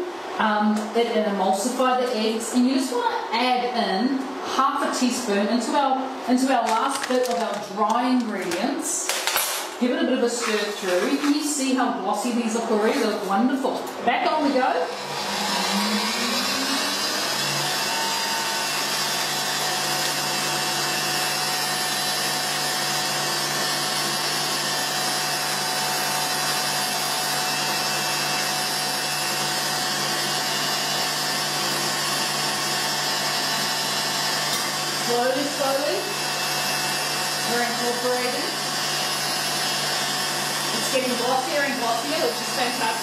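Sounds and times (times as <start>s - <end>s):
stand mixer motor whine: 14.6s - 43.0s.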